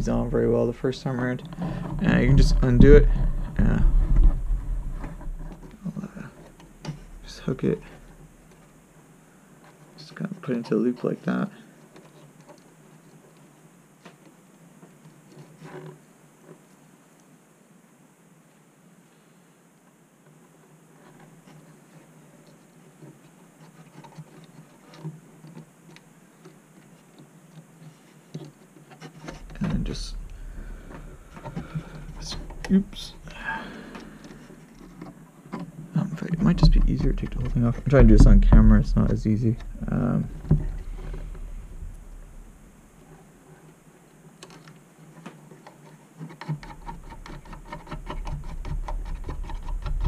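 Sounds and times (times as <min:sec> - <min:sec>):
low handling bumps: 0:00.0 - 0:08.4, 0:29.3 - 0:43.4.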